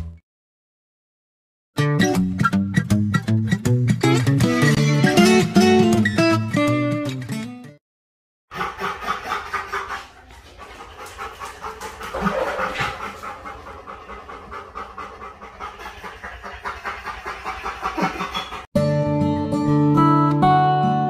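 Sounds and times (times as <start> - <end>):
dog panting rapidly: 8.5 - 18.7.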